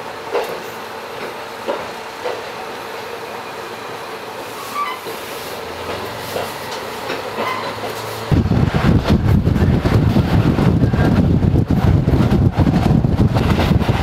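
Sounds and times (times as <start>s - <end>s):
train rolling on rails: 0.0s - 14.0s
loud low rumbling: 8.3s - 14.0s.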